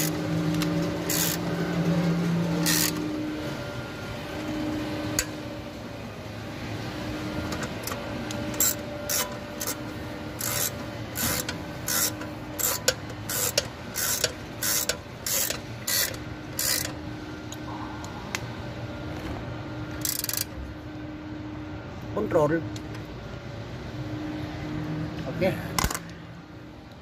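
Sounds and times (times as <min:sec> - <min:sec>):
chain hoist ratchet clicking: 0:00.0 - 0:01.5, 0:02.6 - 0:03.0, 0:07.6 - 0:09.8, 0:10.4 - 0:17.0, 0:20.0 - 0:20.6.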